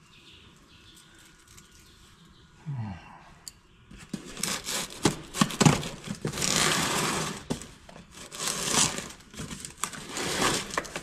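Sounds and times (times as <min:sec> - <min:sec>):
packing tape peeling and tearing: 0:04.1 - 0:11.0.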